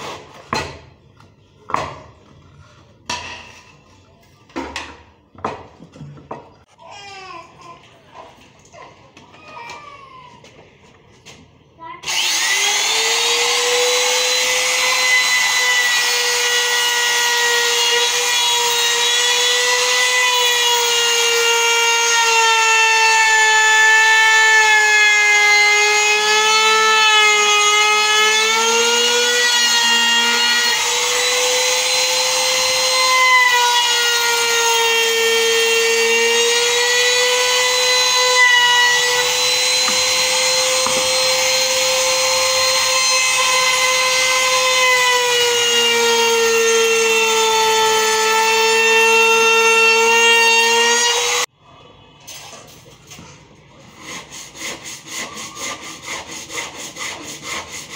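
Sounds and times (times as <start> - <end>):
router whining cutting wood: 12.0 - 51.5.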